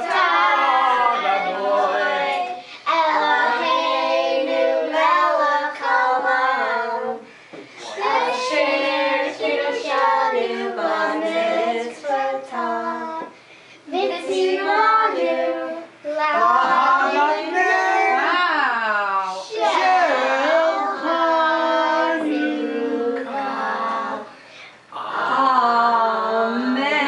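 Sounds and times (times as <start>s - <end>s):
child singing: 0.0s - 7.2s, 7.8s - 18.3s, 19.5s - 24.2s.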